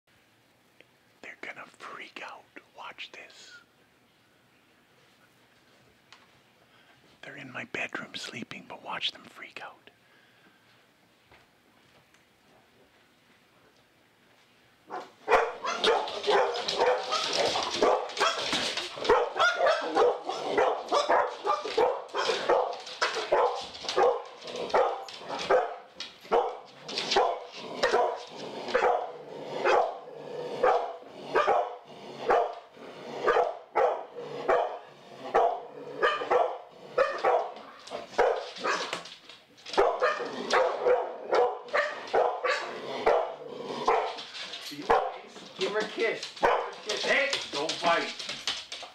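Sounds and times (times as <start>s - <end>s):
dogs barking rapidly: 14.9s - 45.2s, 46.3s - 47.2s.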